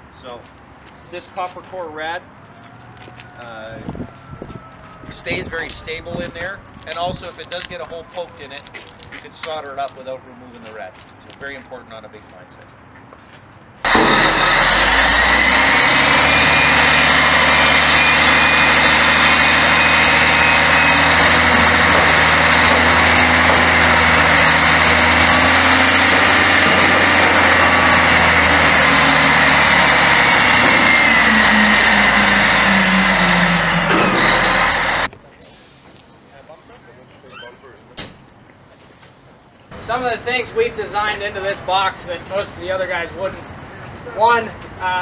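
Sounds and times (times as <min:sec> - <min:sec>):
diesel truck engine running: 0:13.8 - 0:35.1.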